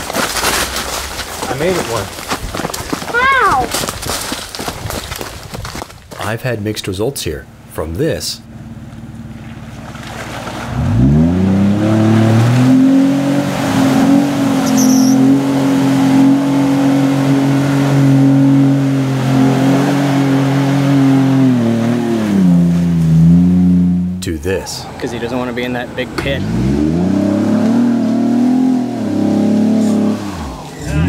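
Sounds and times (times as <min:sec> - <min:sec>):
engine revving hard: 0:10.7 - 0:24.1, 0:26.2 - 0:31.0.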